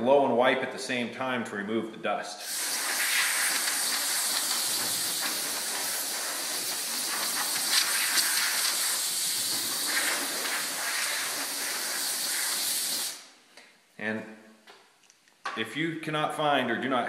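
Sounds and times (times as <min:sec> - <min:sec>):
compressed air hissing from blow gun: 0:02.4 - 0:13.3.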